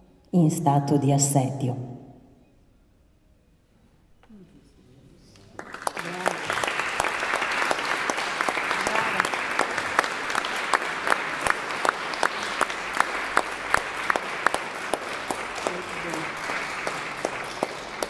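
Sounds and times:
audience applauding: 5.5 - 18.0.

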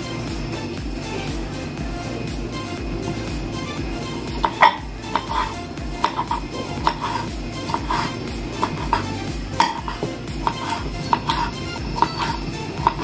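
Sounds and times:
background music: 0.0 - 13.0
knife tapping cutting board: 4.4 - 13.0.

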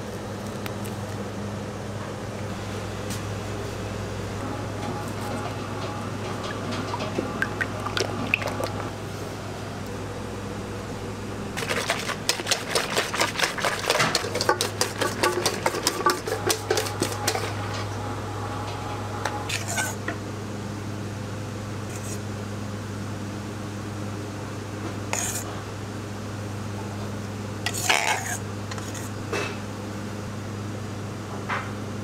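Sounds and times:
whisk clattering against metal bowl: 11.6 - 17.4.

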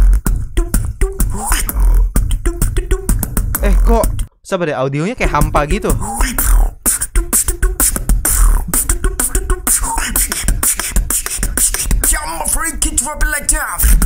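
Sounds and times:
beatboxing vocal drum hits: 0.0 - 4.3, 5.2 - 14.0
deep steady bass: 0.0 - 4.3, 5.2 - 9.7
short pitched vocal sounds: 0.6 - 4.2, 5.8 - 12.6.

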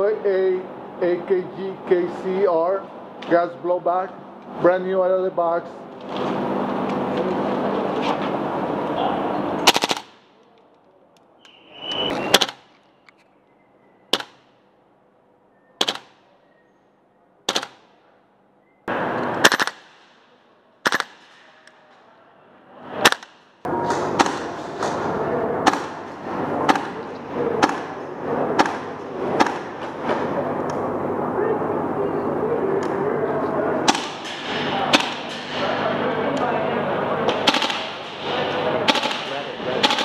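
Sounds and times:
airsoft rifle shots cracking: 9.6 - 10.4, 14.1 - 14.6, 15.8 - 16.3, 17.5 - 18.0, 19.3 - 21.8, 23.0 - 24.5, 27.6 - 29.7, 37.3 - 38.2, 38.8 - 40.0.

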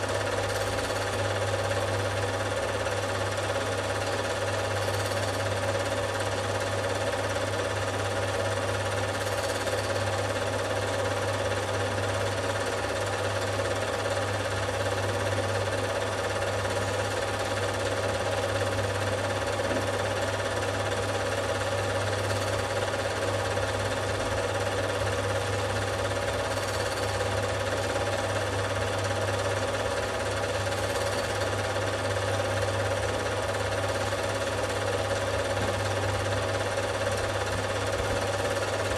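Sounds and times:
film mechanism chatter: 0.0 - 38.9
film projector whirring: 0.0 - 38.9.

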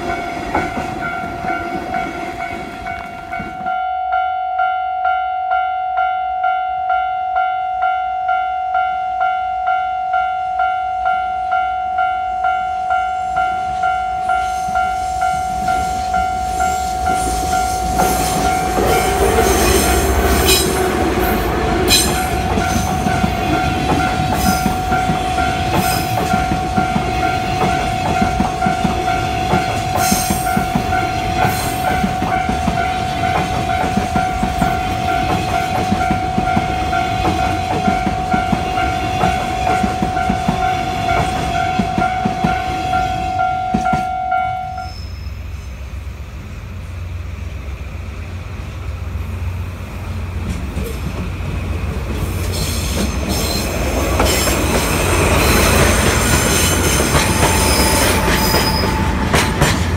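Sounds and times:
diesel locomotive rumble: 14.2 - 43.9, 45.2 - 59.9
train wheels clicking over rail joints: 14.7 - 42.7, 50.3 - 59.9.

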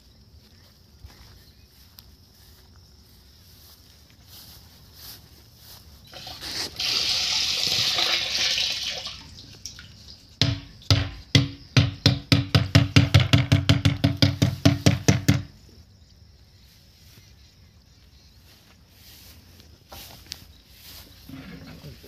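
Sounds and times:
rapid mechanical knocks: 10.4 - 15.5.

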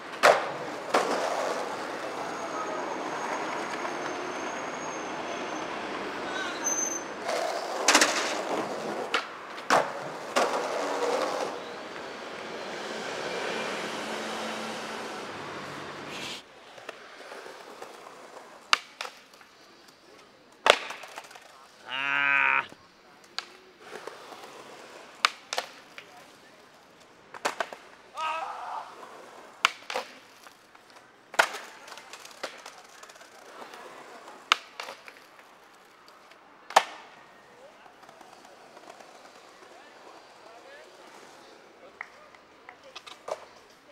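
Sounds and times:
skateboard clacking on ground: 0.0 - 2.2, 7.2 - 12.1, 16.6 - 21.8, 23.2 - 28.0, 29.0 - 43.9
skateboard wheels rolling on pavement: 0.0 - 22.0, 22.6 - 43.9
skateboard tail pops: 0.1 - 1.3, 20.6 - 21.4, 36.7 - 37.2.

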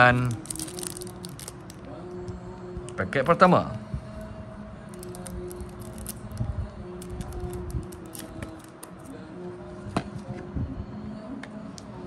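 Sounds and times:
soft background music: 0.0 - 12.0
card pack wrapper crinkling: 0.3 - 1.8, 5.0 - 6.3, 7.0 - 9.0.

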